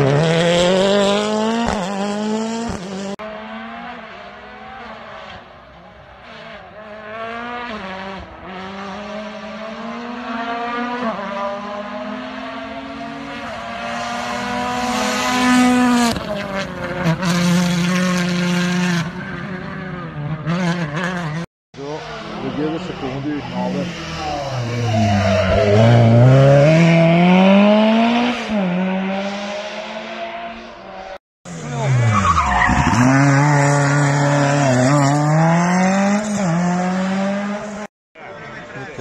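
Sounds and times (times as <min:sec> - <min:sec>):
rally car engines at full throttle: 0:00.0 - 0:39.0
tyre squeal: 0:23.9 - 0:26.2.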